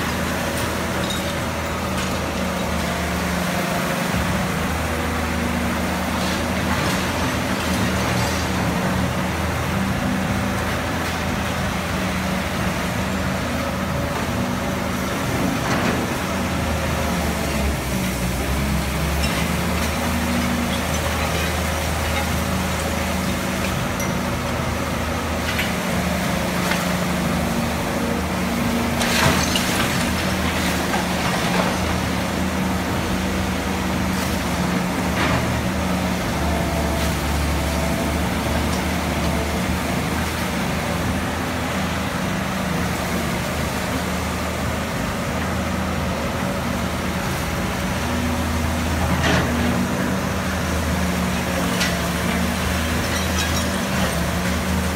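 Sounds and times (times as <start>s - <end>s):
excavator diesel engine running: 0.0s - 54.9s
bucket clanking and rubble crashing: 29.0s - 32.1s.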